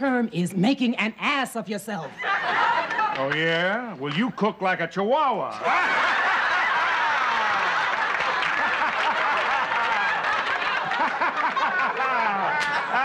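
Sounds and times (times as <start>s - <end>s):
audience laughing: 2.2s - 3.3s, 5.6s - 13.0s.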